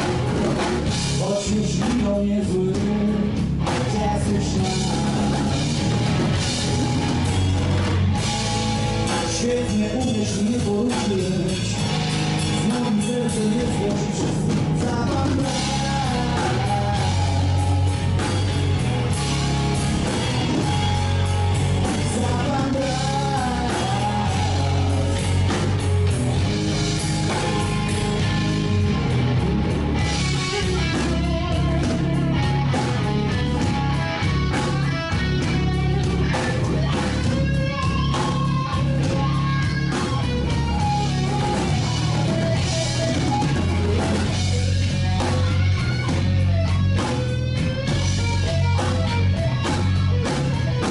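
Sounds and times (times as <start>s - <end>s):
bass guitar: 0.0s - 50.9s
drum kit: 0.0s - 50.9s
electric guitar: 0.0s - 50.9s
man singing: 1.1s - 6.0s, 9.1s - 17.8s, 21.8s - 25.5s.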